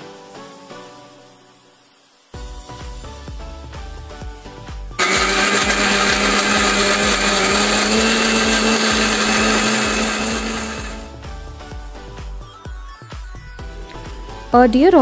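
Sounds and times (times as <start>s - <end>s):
soft dance music: 1.9s - 15.0s
mixer grinder motor blending: 5.0s - 11.1s.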